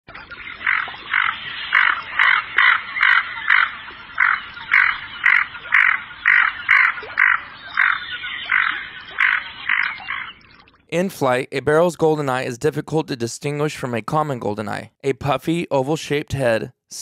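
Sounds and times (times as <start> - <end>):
duck croaking calls: 0.1 - 10.4.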